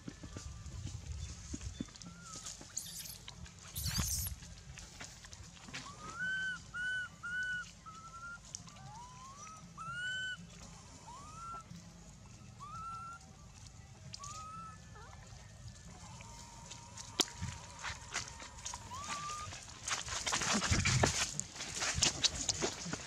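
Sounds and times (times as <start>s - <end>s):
baby monkey coo calls: 2.1s - 4.3s, 5.9s - 10.4s, 11.1s - 11.6s, 12.6s - 13.2s, 18.8s - 19.6s.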